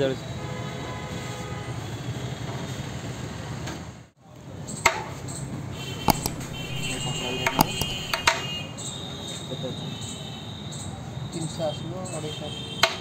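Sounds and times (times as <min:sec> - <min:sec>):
sharp clicks or knocks: 0:06.1 - 0:08.4.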